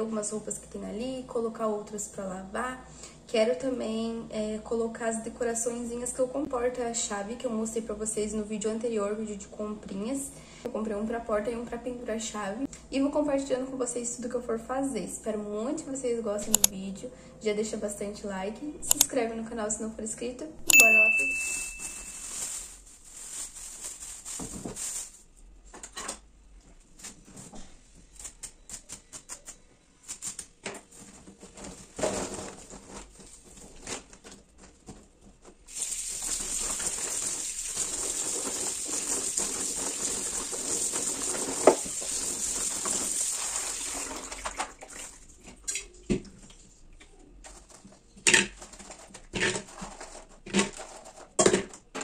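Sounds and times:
plastic bag rustling: 21.5 - 25.4, 30.9 - 44.8
seeds rattling in a colander: 35.7 - 43.8
tap water running: 35.7 - 45.3.

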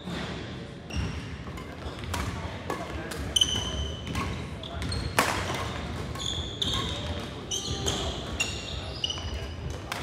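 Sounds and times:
badminton rackets hitting shuttlecock: 1.4 - 8.7
shoes squeaking on hardwood floor: 3.3 - 9.6.

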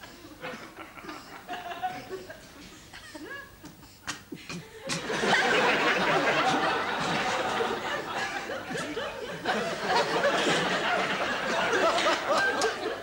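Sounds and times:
studio audience laughing: 5.0 - 13.0.

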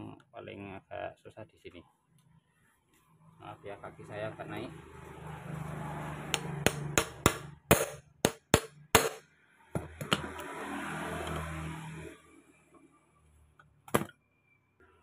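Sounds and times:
hammer striking metal screwdriver: 6.4 - 9.2.

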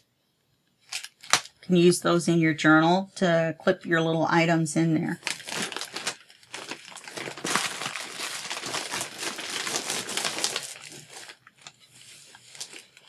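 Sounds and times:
plastic packaging crinkling: 0.8 - 1.7, 5.1 - 13.0.

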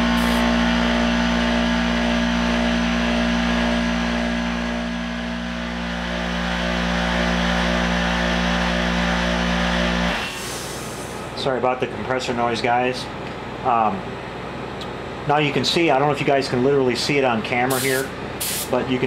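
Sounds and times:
heat gun blowing: 0.0 - 0.5, 10.1 - 11.3, 17.7 - 18.8
air compressor humming: 0.0 - 11.7, 17.6 - 19.0.

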